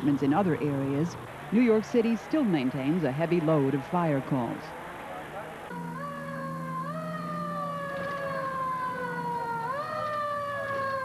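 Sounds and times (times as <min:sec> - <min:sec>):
low steady drone: 0:00.0 - 0:11.0
fire engine siren wailing: 0:04.7 - 0:11.0.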